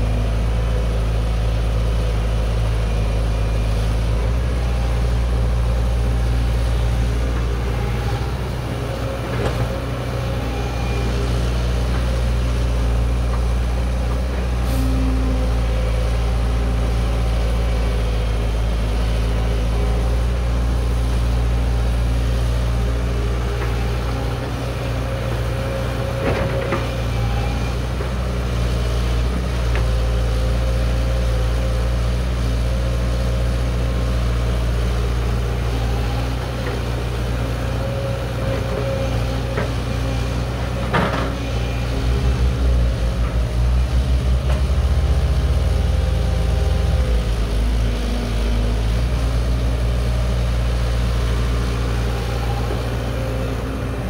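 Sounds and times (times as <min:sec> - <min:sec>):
excavator diesel engine running: 0:00.0 - 0:54.0.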